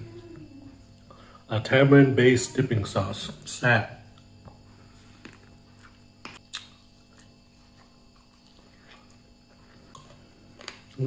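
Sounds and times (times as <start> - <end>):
low steady hum: 0.0 - 11.0
chewing with bone crackles: 4.2 - 11.0.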